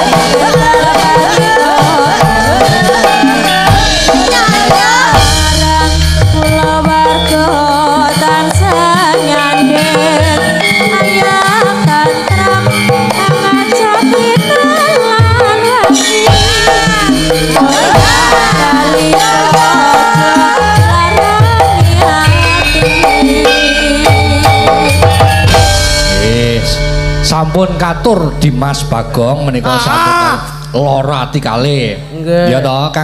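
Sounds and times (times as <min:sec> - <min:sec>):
women singing: 0:00.0 - 0:25.4
hand drums: 0:00.0 - 0:27.2
gamelan music: 0:00.0 - 0:30.6.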